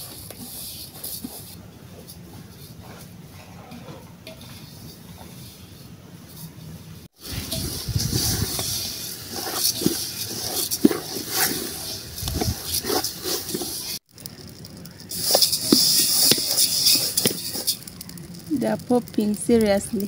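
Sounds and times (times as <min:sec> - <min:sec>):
seeds scraping in metal pot: 0:00.0 - 0:01.6, 0:07.2 - 0:20.0
seeds popping: 0:07.2 - 0:20.0.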